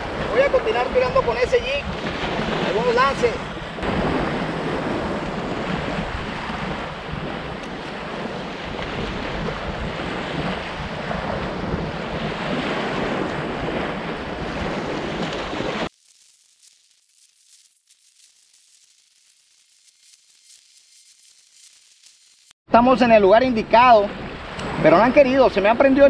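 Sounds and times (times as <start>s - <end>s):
wind rushing across microphone: 0.0s - 15.9s
waves washing on shore: 0.0s - 16.0s, 23.7s - 26.0s.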